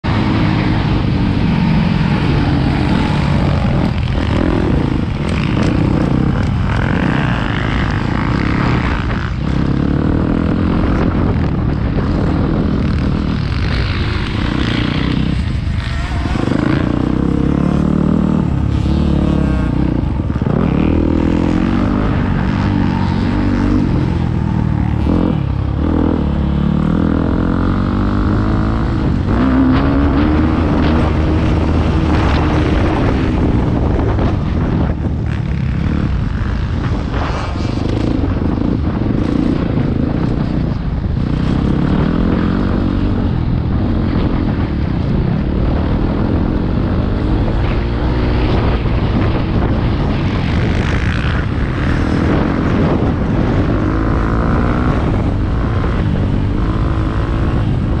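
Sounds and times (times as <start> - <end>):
motocross bike engine revving: 0.0 - 44.7.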